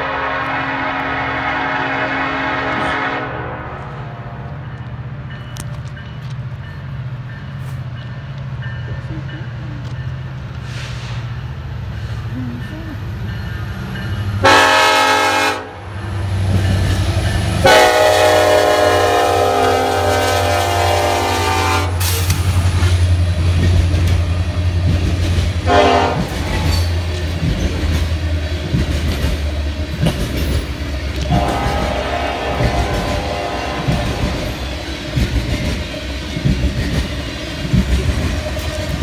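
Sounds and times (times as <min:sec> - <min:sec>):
locomotive air horn blasts: 0:00.0 - 0:04.3, 0:14.4 - 0:15.9, 0:17.6 - 0:22.2, 0:25.6 - 0:26.4, 0:31.2 - 0:34.6
freight cars rumbling and clacking: 0:03.9 - 0:14.4, 0:22.0 - 0:39.0.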